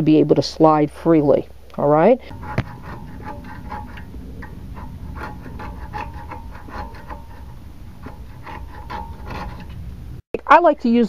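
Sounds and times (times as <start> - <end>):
hand tool scraping metal: 2.3 - 10.2.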